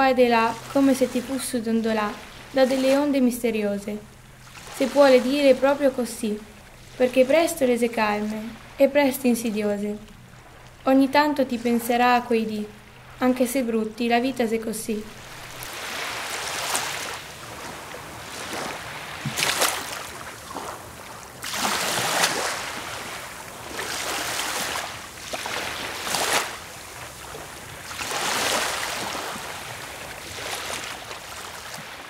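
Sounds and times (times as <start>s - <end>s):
small waves breaking on sand: 4.2s - 5.9s, 15.1s - 32.0s.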